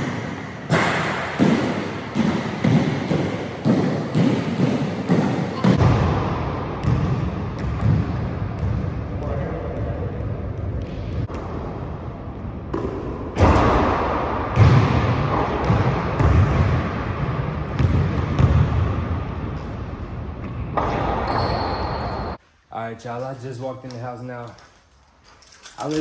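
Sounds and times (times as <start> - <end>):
basketball hitting rim and backboard: 0.0 - 19.6, 20.4 - 22.4
background noise: 0.0 - 26.0
basketball bouncing on hardwood floor: 1.4 - 6.1, 6.8 - 9.0, 14.6 - 16.8, 17.8 - 18.8.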